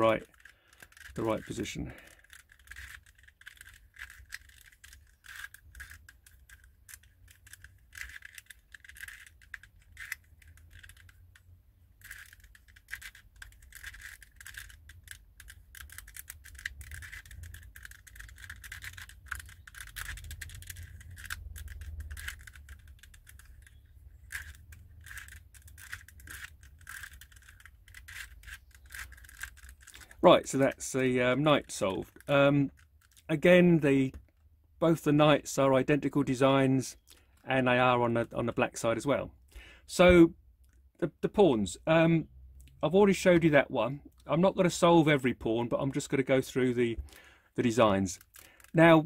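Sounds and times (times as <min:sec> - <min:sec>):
puzzle layers clicking: 0:00.0 - 0:34.2.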